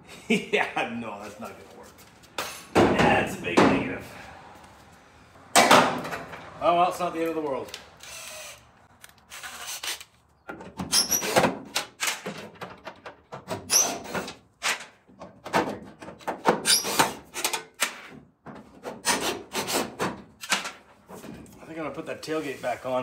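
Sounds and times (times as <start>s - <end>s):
cordless drill: 8.0s - 8.7s, 9.3s - 10.1s
knocks and clatter on metal: 10.5s - 14.4s.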